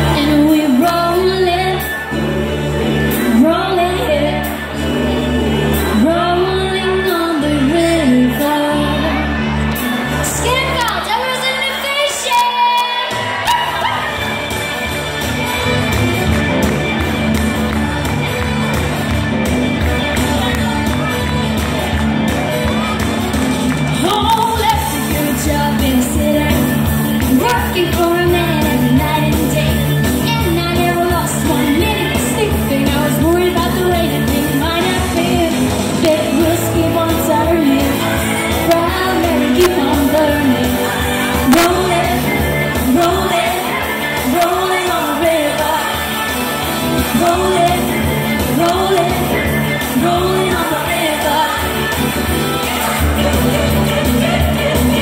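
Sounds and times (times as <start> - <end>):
woman singing: 0.0 - 9.6, 24.0 - 55.0
pop song over pa: 0.0 - 55.0.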